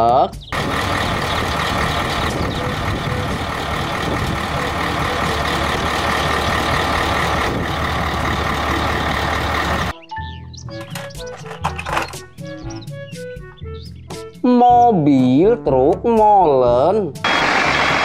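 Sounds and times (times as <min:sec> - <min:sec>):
diesel truck engine running: 0:00.4 - 0:09.9, 0:17.2 - 0:18.0.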